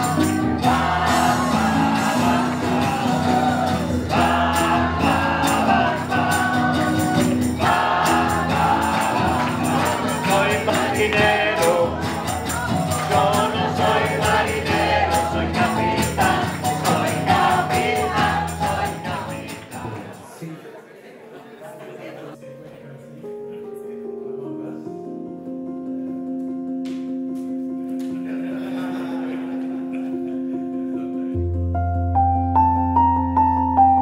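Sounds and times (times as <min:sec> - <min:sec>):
steady percussive beat: 0:00.0 - 0:20.1
voices singing together: 0:00.0 - 0:20.4.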